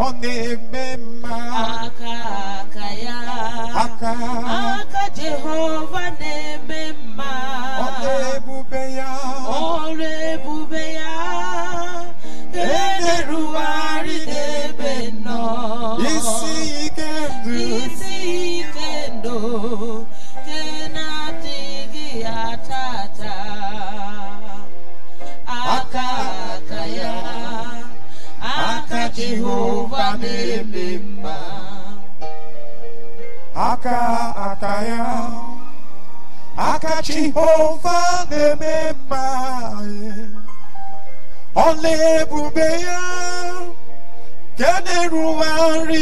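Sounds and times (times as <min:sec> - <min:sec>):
person singing praise song: 0:00.0 - 0:24.7, 0:25.4 - 0:32.0, 0:44.6 - 0:46.0.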